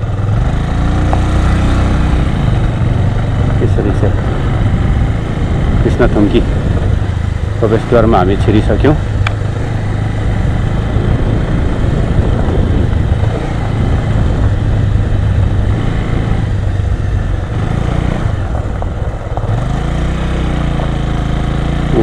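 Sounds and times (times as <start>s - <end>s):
motorcycle engine running: 0.0s - 22.0s
tyres on gravel: 16.6s - 22.0s.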